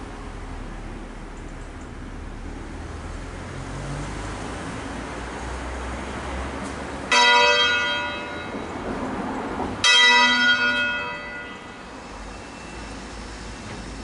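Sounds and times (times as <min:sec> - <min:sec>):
church bell strokes: 0:07.1 - 0:08.7, 0:09.8 - 0:11.9.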